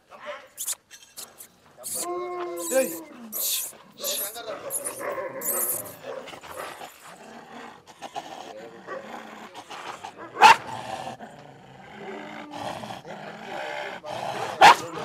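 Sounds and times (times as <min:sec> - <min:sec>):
dog growling: 0:01.2 - 0:15.0.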